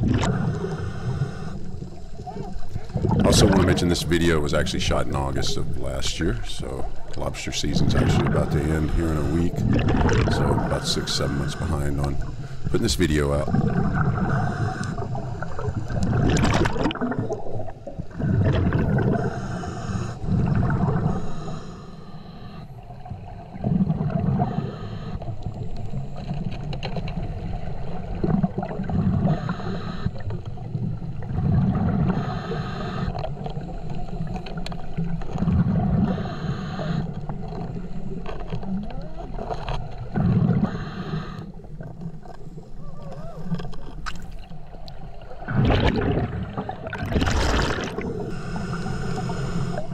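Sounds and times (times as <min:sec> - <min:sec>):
exhaled bubbles underwater: 0:00.0 - 0:21.6, 0:22.7 - 0:49.9
regulator hiss: 0:10.4 - 0:13.6, 0:48.0 - 0:49.9.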